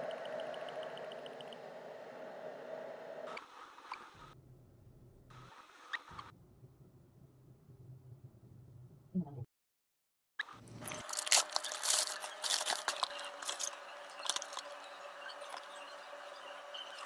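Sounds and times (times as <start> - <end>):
plastic bag crinkling: 10.8 - 14.8.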